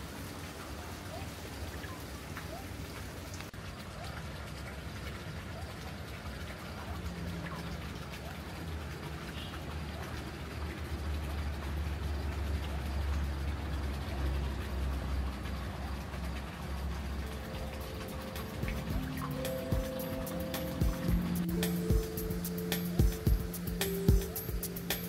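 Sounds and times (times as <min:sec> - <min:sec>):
low engine rumble: 0:06.8 - 0:25.0
steady hiss: 0:16.9 - 0:25.0.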